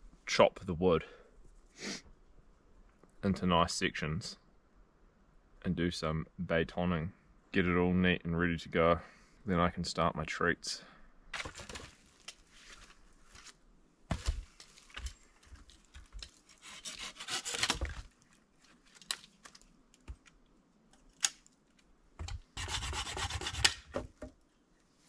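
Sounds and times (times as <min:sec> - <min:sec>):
branches cracking: 0:11.3 - 0:21.9
saw rasping through wood: 0:16.6 - 0:17.8, 0:22.6 - 0:23.9.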